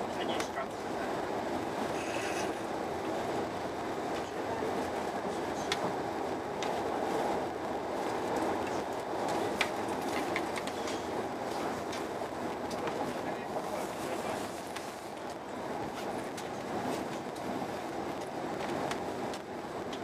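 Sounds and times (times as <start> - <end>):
train running noise inside car: 0.0 - 20.0.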